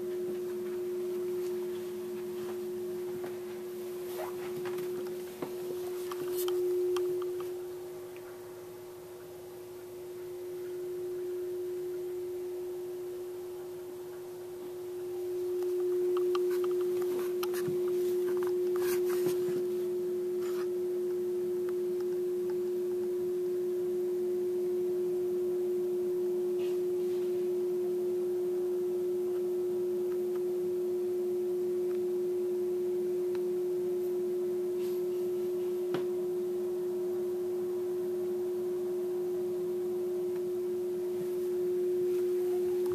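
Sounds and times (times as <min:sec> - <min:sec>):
electrical hum: 0:00.0 - 0:42.9.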